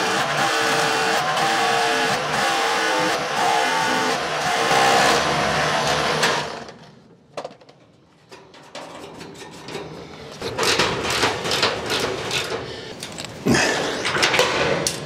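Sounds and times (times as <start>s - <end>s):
rotary hammer drilling into concrete: 0.0s - 6.7s.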